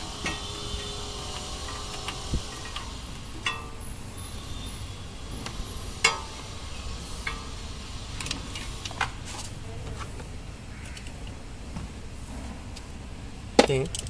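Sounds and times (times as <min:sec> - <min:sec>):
car parts clicking and tapping: 0:00.0 - 0:04.0, 0:05.4 - 0:06.6, 0:13.5 - 0:14.0
low steady hum: 0:00.0 - 0:14.0.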